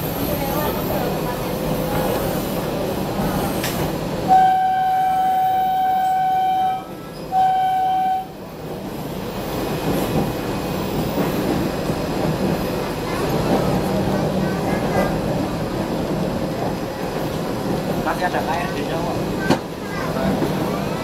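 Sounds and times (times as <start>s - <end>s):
railbus running noise: 0.0s - 21.0s
train horn blasts: 4.3s - 8.4s.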